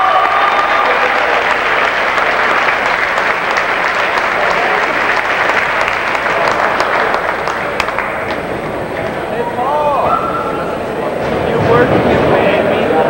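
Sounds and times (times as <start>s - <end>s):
crowd applauding: 0.0s - 9.3s.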